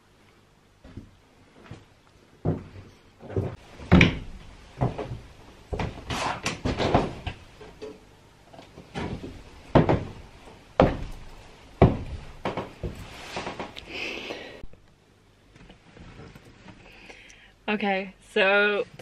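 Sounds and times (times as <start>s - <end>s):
footsteps on van floor: 0.8s - 4.0s, 8.8s - 13.8s.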